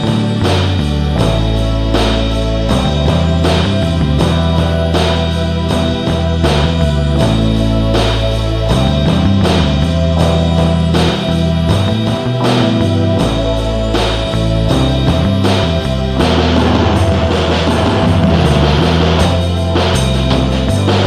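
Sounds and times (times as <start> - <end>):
instrumental music with steady beat: 0.0 - 21.0.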